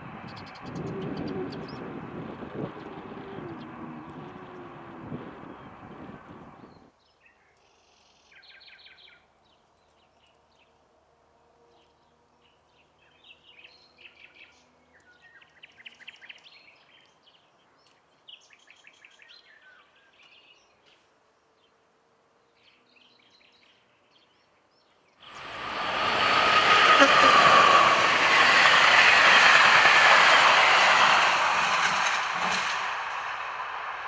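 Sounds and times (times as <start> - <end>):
passing train: 0.0 - 6.9, 25.2 - 34.0.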